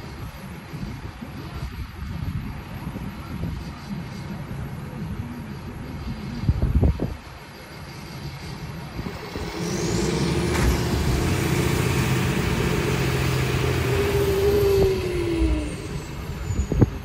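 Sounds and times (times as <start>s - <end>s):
truck engine under load: 8.9s - 17.0s
high whine: 9.0s - 17.0s.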